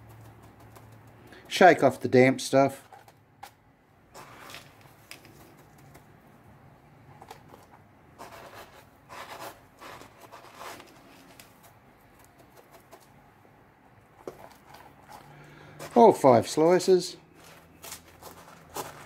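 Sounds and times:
coarse salt crunching in plastic tub: 4.2s - 6.0s, 17.3s - 19.0s.

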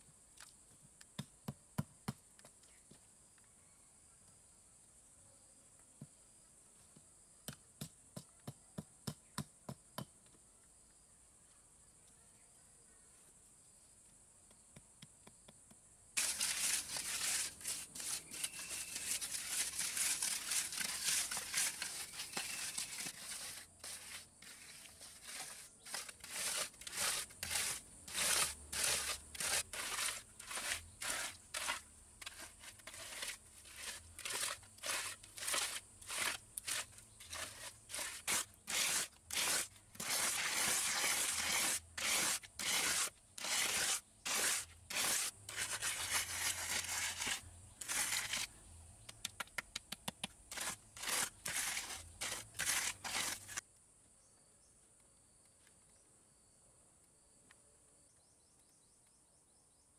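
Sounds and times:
block rasping over wet cement: 16.2s - 48.5s, 49.2s - 53.6s.

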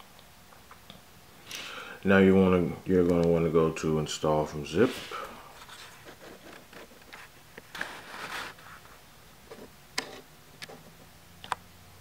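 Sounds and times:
fingers rubbing on phone case: 5.6s - 9.7s.

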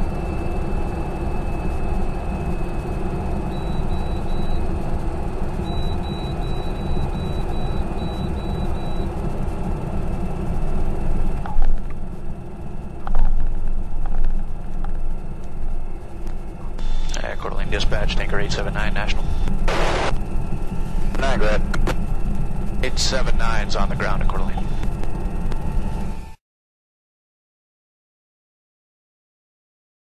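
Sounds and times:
aircraft engine and propeller: 0.0s - 26.4s
high beep pulses: 3.5s - 4.6s, 5.6s - 9.1s.

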